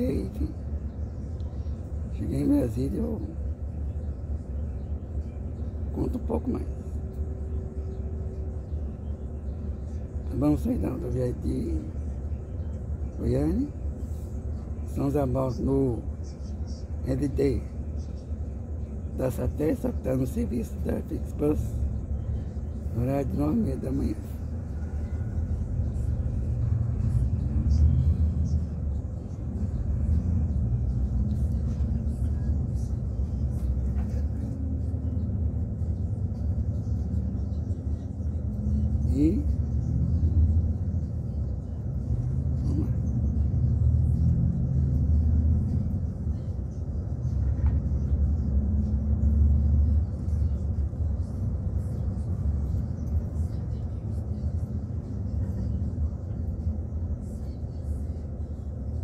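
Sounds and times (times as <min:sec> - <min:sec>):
bus engine and road noise: 0:00.0 - 0:59.0.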